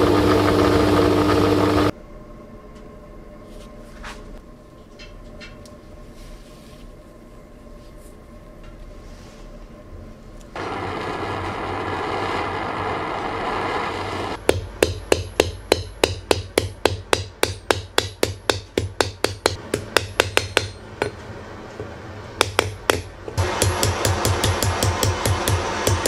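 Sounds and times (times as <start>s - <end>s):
blowtorch flame hissing: 10.6s - 14.4s, 23.3s - 26.0s
hammer striking nail on steel: 14.4s - 21.2s, 22.4s - 26.0s.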